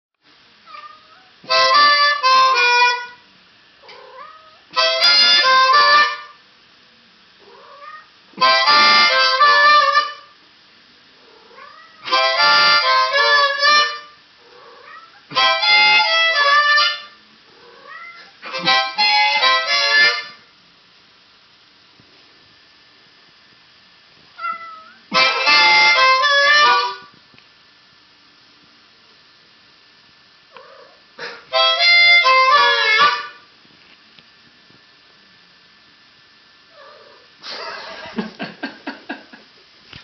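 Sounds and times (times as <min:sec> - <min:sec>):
cat meowing: 0:00.6 - 0:01.4, 0:03.8 - 0:04.7, 0:07.4 - 0:08.1, 0:11.3 - 0:12.1, 0:14.5 - 0:15.4, 0:17.6 - 0:18.4, 0:24.4 - 0:25.1, 0:36.7 - 0:37.3
harmonica chord phrases: 0:01.4 - 0:03.2, 0:04.7 - 0:06.4, 0:08.3 - 0:10.4, 0:12.0 - 0:14.2, 0:15.3 - 0:20.5, 0:25.1 - 0:27.1, 0:30.6 - 0:33.5.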